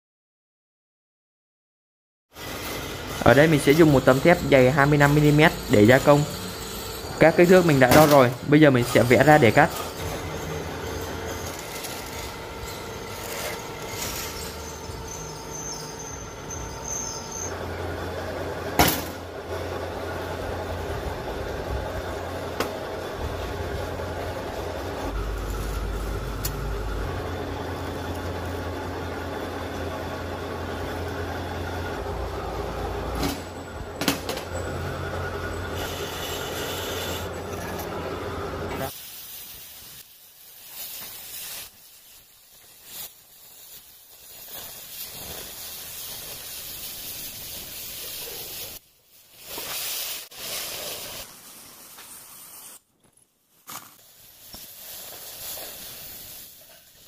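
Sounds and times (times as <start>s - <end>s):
cutting torch hissing: 2.4s - 17.8s, 34.9s - 37.4s, 38.7s - 52.8s, 54.0s - 57.0s
steady mechanical hum: 2.4s - 49.6s.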